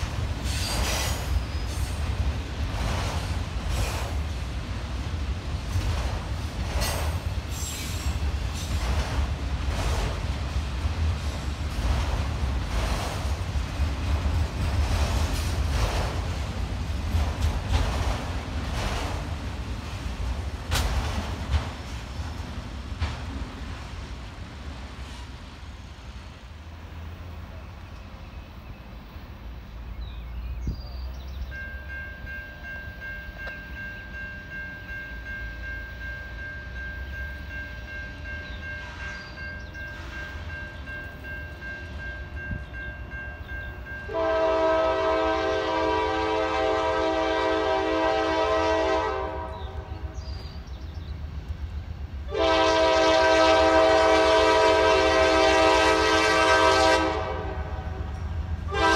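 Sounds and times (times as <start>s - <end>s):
low rumble of passing trains: 0.0s - 58.9s
locomotive air horn blast: 44.1s - 50.1s, 52.3s - 58.1s, 58.7s - 58.9s.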